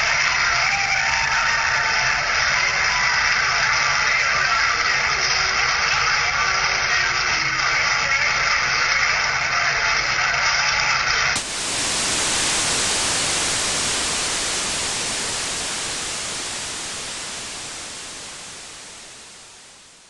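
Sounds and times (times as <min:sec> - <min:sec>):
static hiss: 0:11.3 - 0:20.0.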